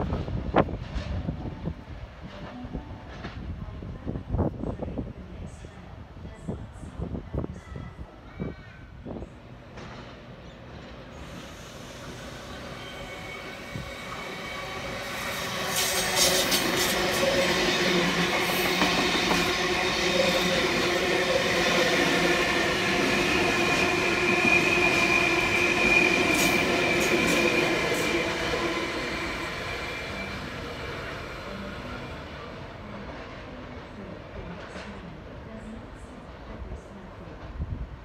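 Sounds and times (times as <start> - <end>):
train wheels rumbling on rail: 0.0 - 5.7, 8.3 - 38.0
high wheel squeal: 12.2 - 18.0.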